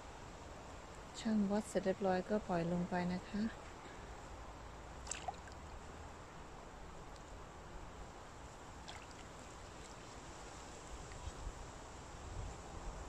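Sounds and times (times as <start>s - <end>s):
small water splash: 5.0s - 5.8s, 8.8s - 10.2s
water sloshing and trickling: 5.0s - 5.8s, 8.7s - 11.4s.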